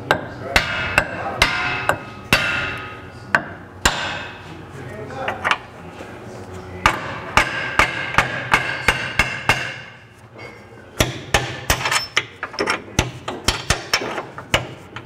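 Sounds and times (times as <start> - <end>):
hammer tapping metal: 0.1 - 4.4, 6.8 - 10.0, 11.0 - 15.0.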